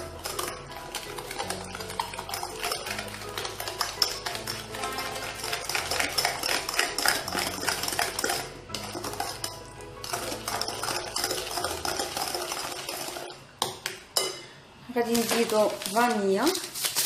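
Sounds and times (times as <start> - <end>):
whisk clattering in glass bowl: 0.0 - 13.4.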